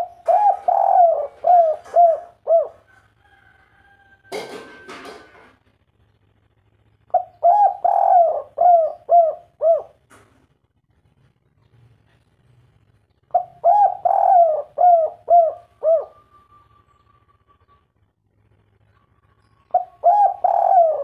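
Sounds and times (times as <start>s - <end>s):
dove cooing: 0.0s - 3.0s, 7.1s - 10.1s, 13.3s - 17.9s, 19.7s - 21.0s.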